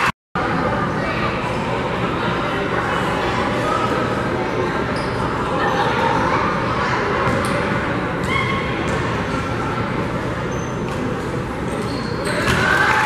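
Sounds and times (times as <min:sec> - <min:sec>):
spectators chattering: 0:00.0 - 0:13.0.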